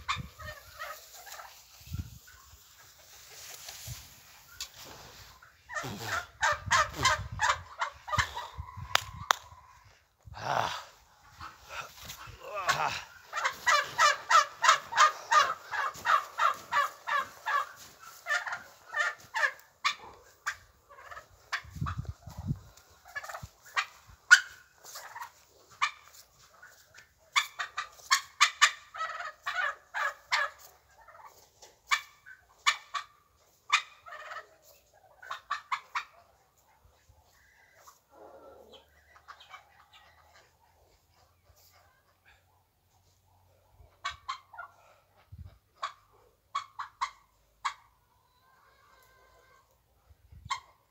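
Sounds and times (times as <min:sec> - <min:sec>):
fowl rattling calls: 0:12.7 - 0:21.6.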